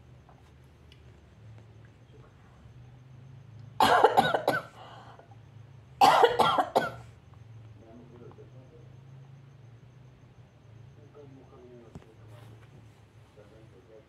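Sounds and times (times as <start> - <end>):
person coughing: 3.8 - 4.8, 6.0 - 7.0.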